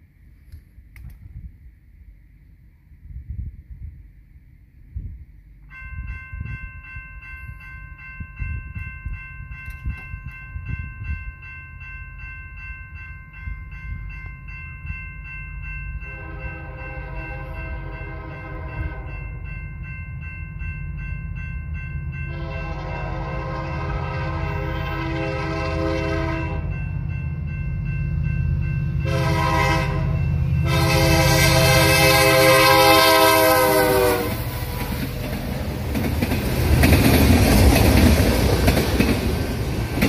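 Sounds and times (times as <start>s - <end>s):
railroad crossing bell ringing: 5.6s - 40.0s
locomotive horn blasts: 16.1s - 19.2s, 22.3s - 26.8s, 29.0s - 34.8s.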